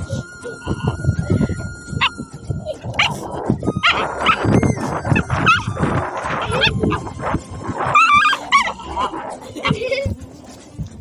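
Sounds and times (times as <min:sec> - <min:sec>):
young dog whining and yelping: 0:00.1 - 0:10.1.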